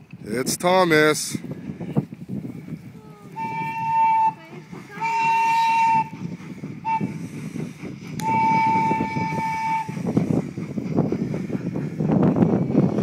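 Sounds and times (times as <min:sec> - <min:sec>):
steam train whistle blasts: 0:03.4 - 0:04.4, 0:05.0 - 0:06.2, 0:06.8 - 0:07.2, 0:08.2 - 0:10.0.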